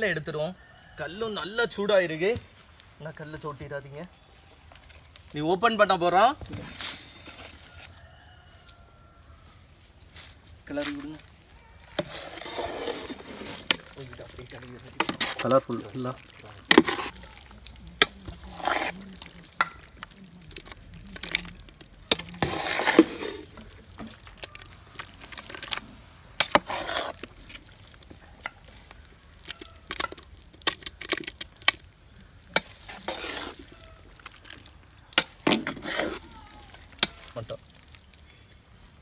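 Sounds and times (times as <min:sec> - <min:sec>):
wet squishes of food: 0:11.0 - 0:39.0
spatula scraping metal pot: 0:12.0 - 0:20.0, 0:22.1 - 0:24.4, 0:26.4 - 0:28.6, 0:32.6 - 0:37.6.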